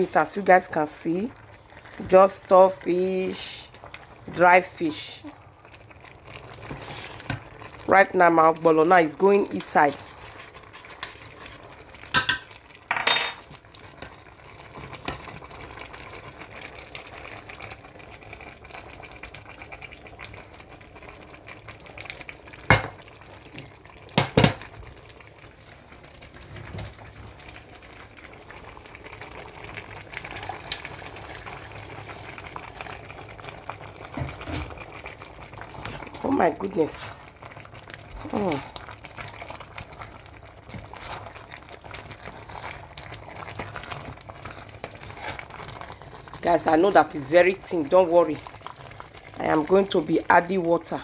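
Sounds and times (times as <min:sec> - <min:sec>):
soup simmering: 0:00.0 - 0:51.0
wooden spoon stirring: 0:06.0 - 0:07.8, 0:09.2 - 0:12.5, 0:38.0 - 0:46.5.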